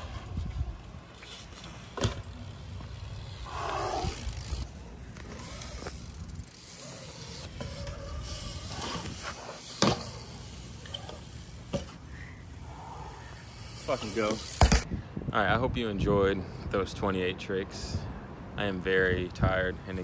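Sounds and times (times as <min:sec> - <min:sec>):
bike landing knocks: 0:01.9 - 0:03.0, 0:14.4 - 0:14.9.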